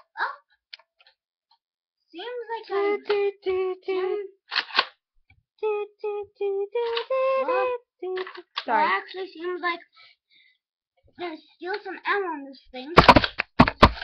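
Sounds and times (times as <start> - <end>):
child singing wordless tune: 2.2 - 4.4, 5.6 - 10.2, 11.2 - 13.0.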